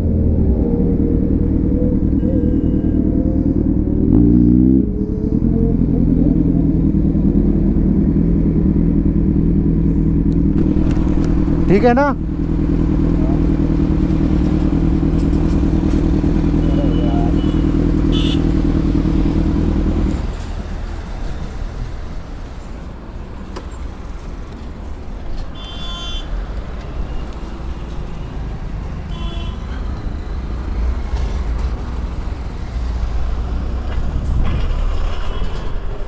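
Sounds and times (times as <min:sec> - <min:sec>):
passing highway traffic: 0:00.0 - 0:36.0
short horn honks: 0:16.8 - 0:18.5.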